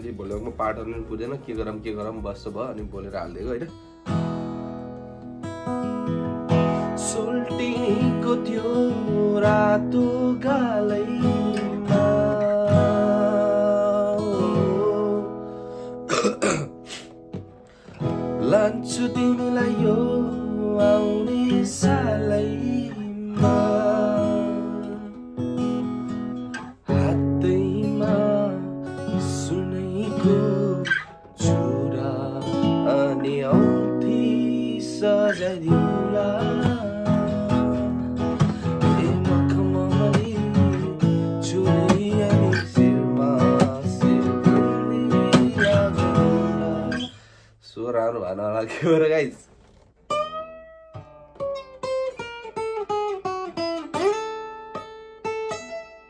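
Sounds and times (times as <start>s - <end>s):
acoustic guitar strumming: 0.0s - 47.6s, 49.5s - 56.0s
man singing: 6.7s - 15.5s, 18.3s - 25.2s, 26.8s - 47.2s.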